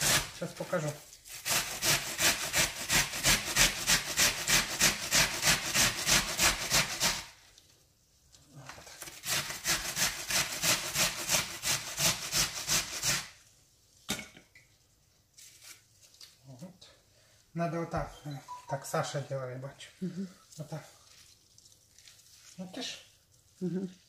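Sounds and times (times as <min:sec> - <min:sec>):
onion grating on grater: 0:00.0 - 0:07.4, 0:08.8 - 0:13.4.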